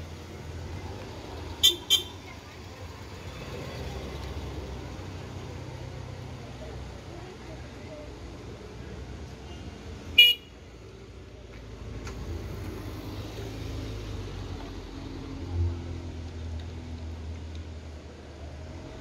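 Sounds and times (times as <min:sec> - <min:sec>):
vehicle engines running: 0:00.0 - 0:19.0
vehicle horn beep: 0:01.6 - 0:02.2, 0:10.2 - 0:10.5.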